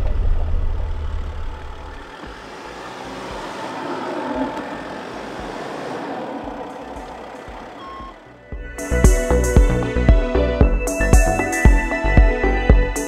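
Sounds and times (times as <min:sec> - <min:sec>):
toy truck engine running: 0:01.0 - 0:08.4
background music: 0:02.2 - 0:13.0.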